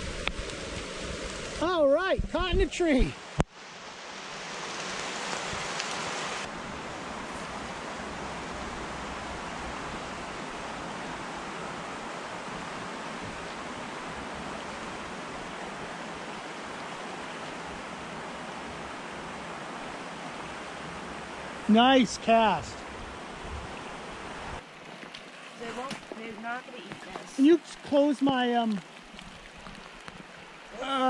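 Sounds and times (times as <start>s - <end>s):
water rushing over rocks: 0.0s - 31.0s.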